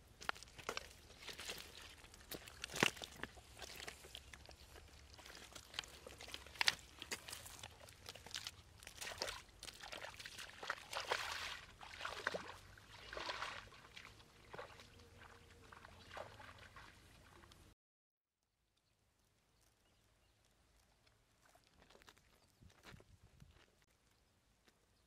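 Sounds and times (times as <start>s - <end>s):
water sloshing and splashing: 0.2s - 17.7s.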